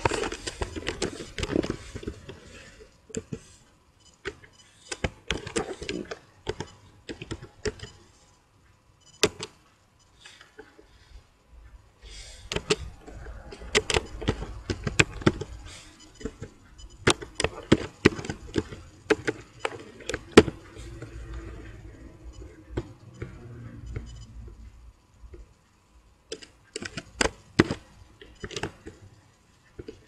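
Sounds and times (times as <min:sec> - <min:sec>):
keyboard typing: 0:00.0 - 0:03.4, 0:04.2 - 0:08.0, 0:12.4 - 0:25.6, 0:26.3 - 0:29.2
low background hum: 0:00.0 - 0:30.0.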